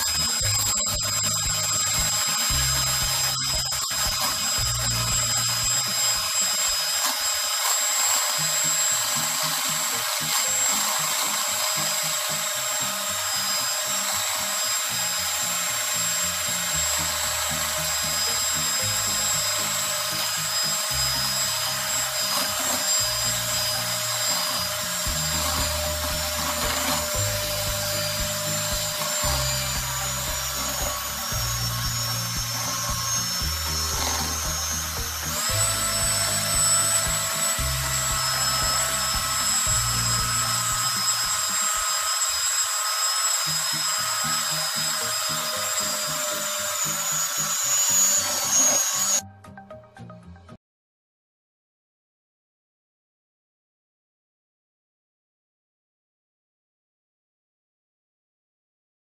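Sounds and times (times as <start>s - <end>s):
background music with bass: 0.0s - 6.9s, 15.0s - 41.9s, 43.7s - 50.6s
electric hand mixer whining: 0.0s - 49.3s.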